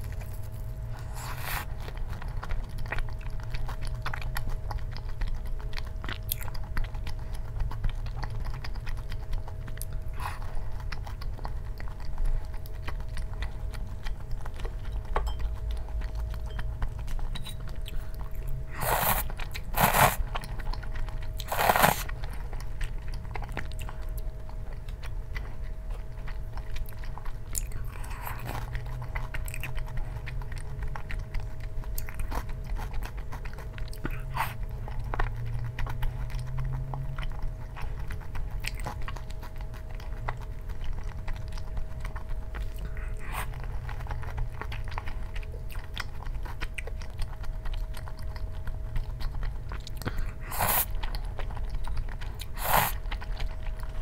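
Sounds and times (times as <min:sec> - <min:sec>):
soft chewing with clicks: 0:00.0 - 0:54.0
loud crunching bites: 0:18.7 - 0:20.2, 0:21.4 - 0:22.1.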